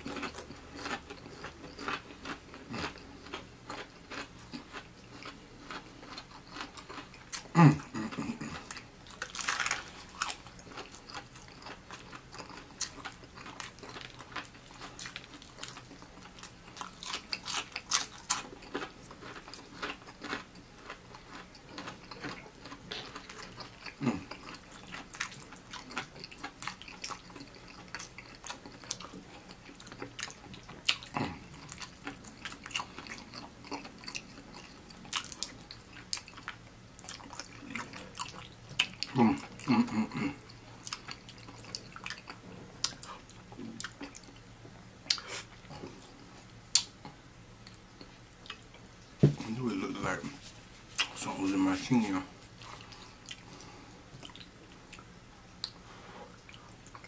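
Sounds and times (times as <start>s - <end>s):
wet chewing: 0.0s - 44.4s
crunchy fried chicken crackling: 0.0s - 55.8s.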